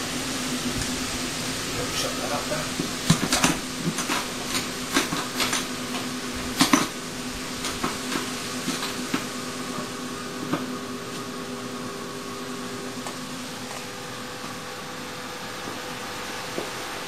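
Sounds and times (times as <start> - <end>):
boiler humming: 0.0 - 17.0.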